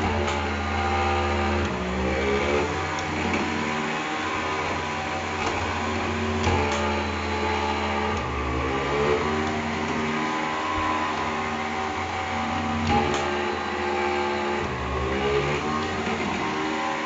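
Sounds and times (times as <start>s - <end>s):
stair climber mechanical drone: 0.0s - 17.0s.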